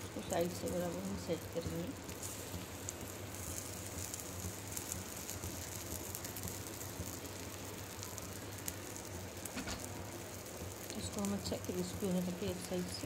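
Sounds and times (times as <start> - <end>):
batter sizzling on hot pan: 0.0 - 13.0.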